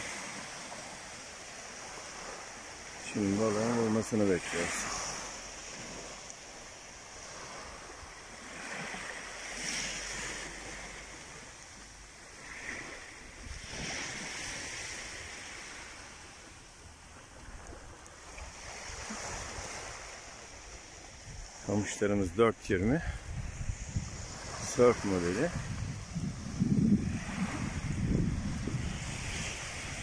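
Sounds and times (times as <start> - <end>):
small waves breaking on beach: 0.0 - 30.0.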